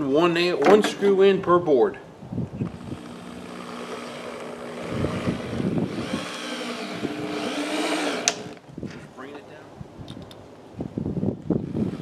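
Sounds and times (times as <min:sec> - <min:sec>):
drill driving screw into wood: 0:02.6 - 0:08.6, 0:11.6 - 0:12.0
sharp drill click: 0:02.6 - 0:08.6.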